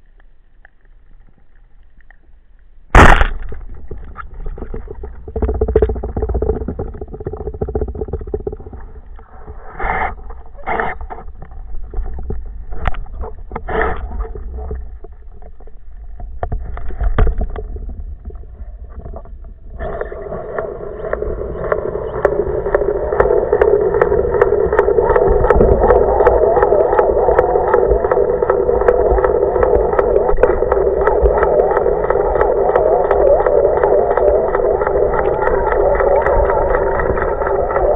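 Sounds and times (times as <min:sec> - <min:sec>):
muffled underwater noise: 0:03.0 - 0:37.9
motor drone through water: 0:11.2 - 0:37.9.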